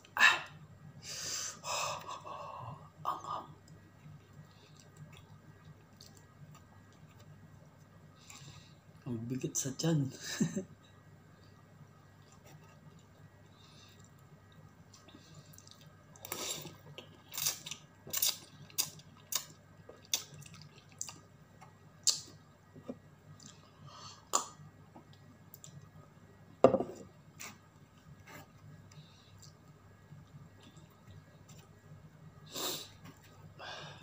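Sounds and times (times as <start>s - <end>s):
person chewing noodles: 3.6s - 7.3s, 12.2s - 22.4s
wet clicks and lip smacks: 17.4s - 22.4s.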